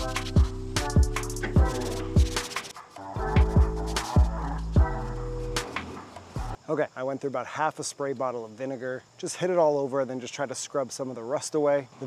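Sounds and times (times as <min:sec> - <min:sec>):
background music with a beat: 0:00.0 - 0:06.6.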